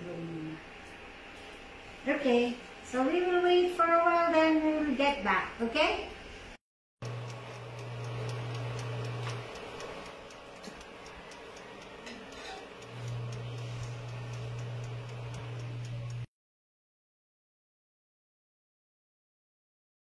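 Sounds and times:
oven hum: 7.0 - 16.3
oven ticking: 7.0 - 16.3.

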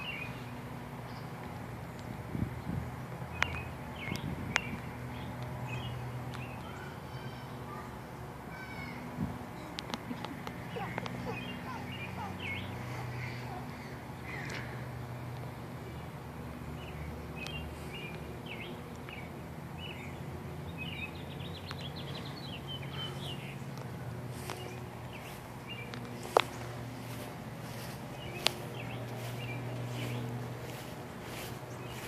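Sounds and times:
small birds chirping: 0.0 - 32.0
steady low hum: 8.0 - 32.0.

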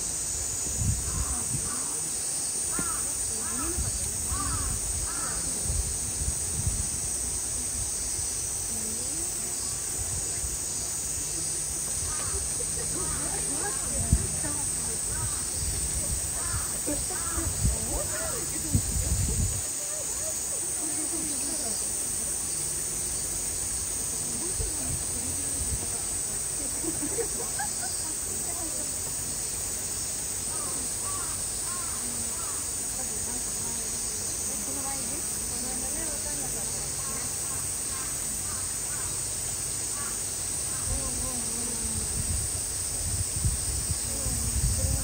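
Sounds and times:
high-pitched hiss: 0.0 - 45.0
distant voices murmuring: 0.6 - 45.0
harsh crow-like bird calls: 4.3 - 5.5, 37.5 - 39.2.

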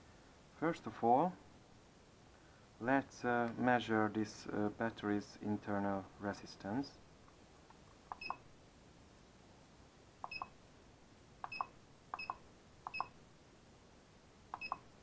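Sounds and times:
short high beeps: 10.3 - 10.5, 11.4 - 13.2, 14.6 - 14.9.

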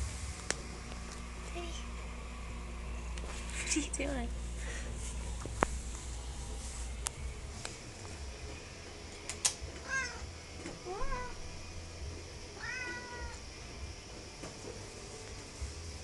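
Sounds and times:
sharp click: 9.3 - 9.6
cat meowing: 9.8 - 10.2, 12.6 - 13.4.

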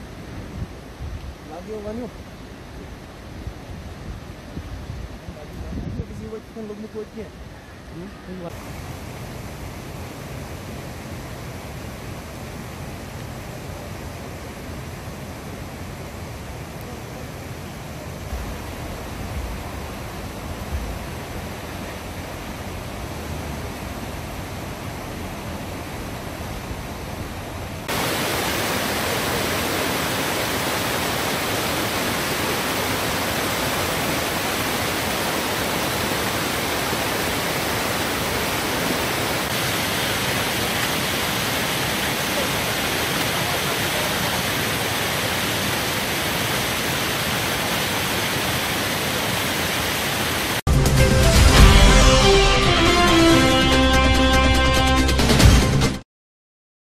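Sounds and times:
fast-flowing stream water: 8.5 - 50.6.

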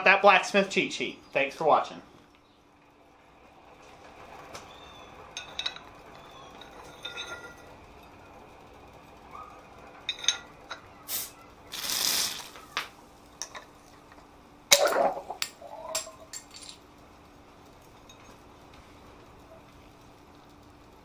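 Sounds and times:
drink foaming: 11.0 - 12.8
gas hissing from bottle: 11.0 - 12.9.

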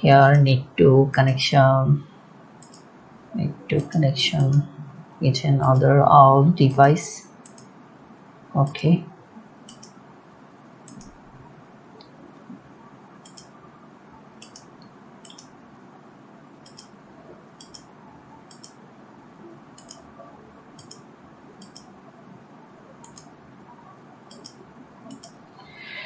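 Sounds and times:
faint steady hiss: 0.0 - 26.0
computer mouse clicking: 2.6 - 2.9, 7.4 - 7.7, 9.6 - 10.0, 10.8 - 11.2, 13.2 - 13.5, 14.4 - 15.5, 16.6 - 17.0, 17.6 - 18.8, 19.8 - 20.1, 20.8 - 21.9, 23.0 - 23.4, 24.3 - 25.4.

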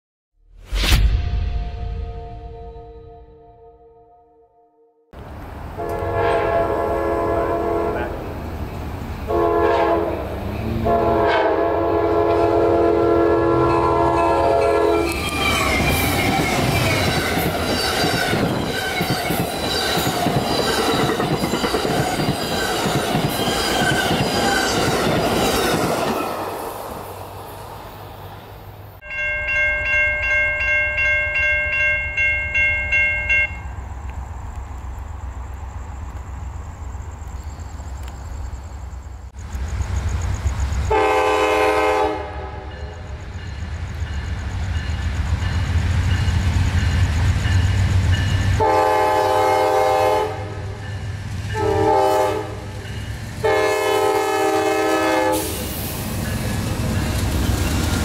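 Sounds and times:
train air horn blasts: 5.8 - 8.2, 9.3 - 15.2, 40.9 - 43.0, 48.6 - 50.9, 51.5 - 52.8, 53.4 - 55.7
crossing bell ringing: 13.6 - 25.8, 29.0 - 33.9
train wheels clattering: 13.7 - 26.4.

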